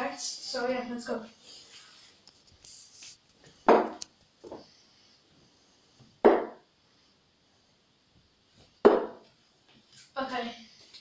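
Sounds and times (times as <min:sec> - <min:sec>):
darts thudding into dartboard: 0:03.7 - 0:04.0, 0:06.2 - 0:06.6, 0:08.8 - 0:09.3.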